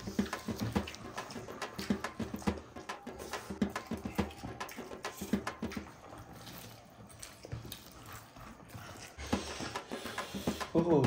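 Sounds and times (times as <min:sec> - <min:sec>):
wet chewing and lip-smacking: 0:00.0 - 0:11.0.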